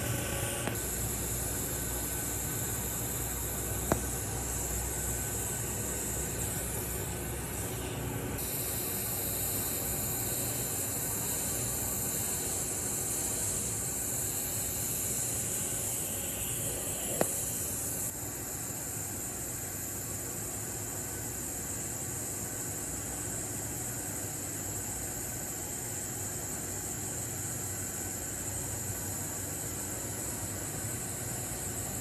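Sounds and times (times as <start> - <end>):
welding arc hissing: 0.0 - 20.1.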